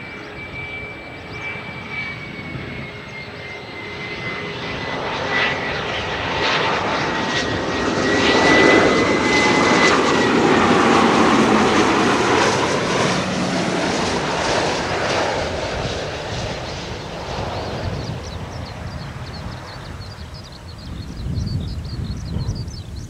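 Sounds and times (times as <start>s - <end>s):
high jet engine whine: 0.0s - 23.0s
jet noise: 0.0s - 23.0s.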